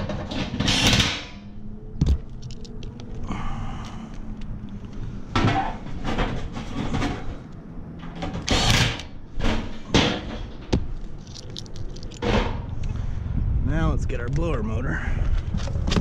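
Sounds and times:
tools and metal parts knocking: 9.6s - 12.5s.

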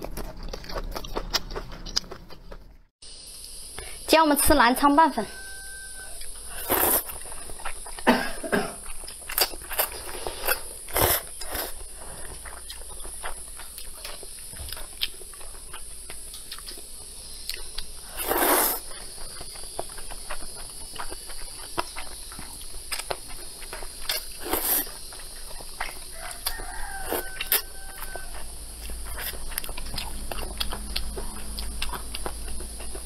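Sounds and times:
person slurping noodles: 6.5s - 7.2s, 18.1s - 18.9s, 24.4s - 24.9s.

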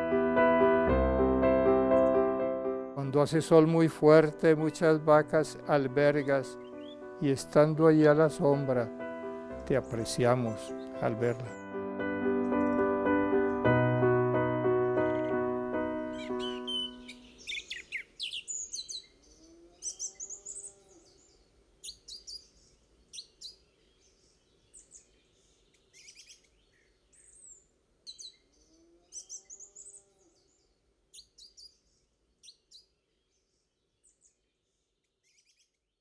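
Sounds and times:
birds chirping and trilling: 3.0s - 35.9s
low rising and falling bird call: 6.1s - 7.2s, 12.4s - 23.6s, 28.1s - 30.6s.

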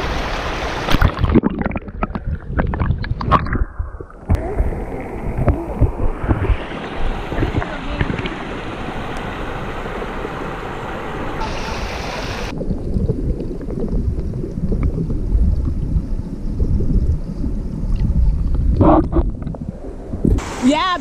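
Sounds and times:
underwater rumble of current: 0.0s - 20.6s
river rapids rushing over rocks: 6.5s - 12.5s.

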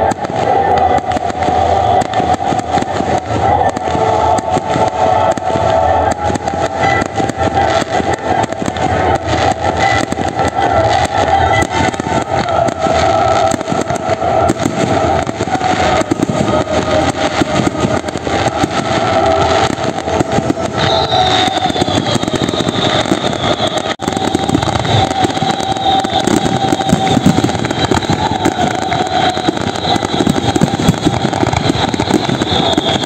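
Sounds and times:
fireworks bursting and crackling: 0.0s - 33.0s
steady whistling tone: 0.0s - 33.0s
faint falling whistle: 20.7s - 33.0s.

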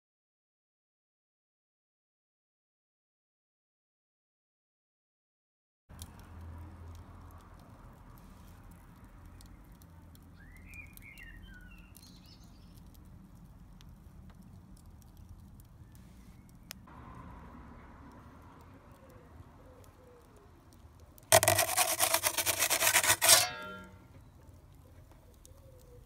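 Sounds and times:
wood fire crackling: 5.9s - 26.0s.

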